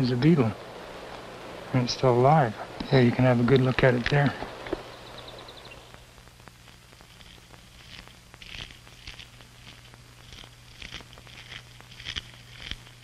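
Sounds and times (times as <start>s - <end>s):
steady low hum: 0.0s - 13.0s
beetle chewing wood clicks: 2.8s - 6.0s, 7.0s - 13.0s.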